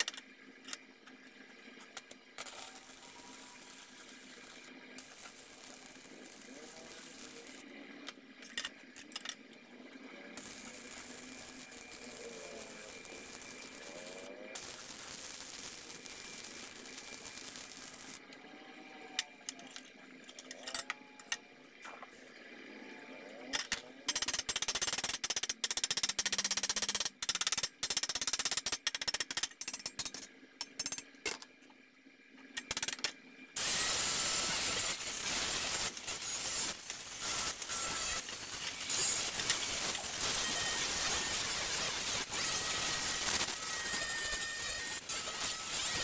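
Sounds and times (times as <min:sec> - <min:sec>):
arc welding crackling: 0:01.7 - 0:09.2, 0:10.4 - 0:18.3, 0:33.6 - 0:46.0
angle grinder on steel: 0:02.4 - 0:07.6, 0:10.4 - 0:18.2, 0:33.6 - 0:46.0.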